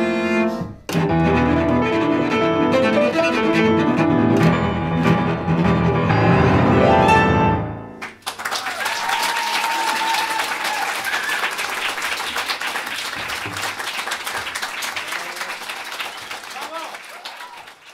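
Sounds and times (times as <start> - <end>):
cello and piano: 0.0 - 7.8
audience applause: 8.0 - 17.9.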